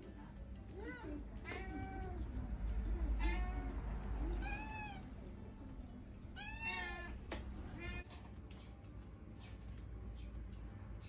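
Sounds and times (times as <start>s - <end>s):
cat meowing: 0.8s - 2.2s, 3.1s - 3.8s, 4.4s - 5.1s, 6.4s - 7.2s, 7.8s - 8.0s.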